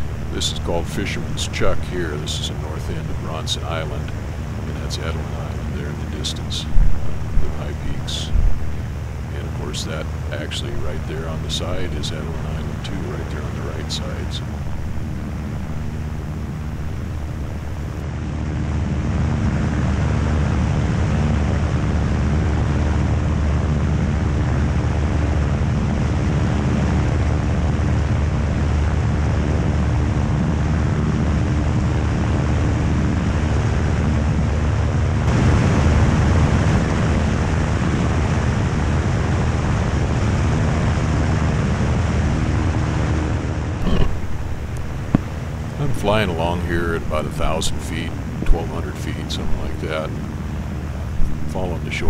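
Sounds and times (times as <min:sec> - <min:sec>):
wind buffeting microphone: 0:00.0 - 0:18.0, 0:43.7 - 0:52.0
light aircraft engine droning: 0:00.0 - 0:52.0.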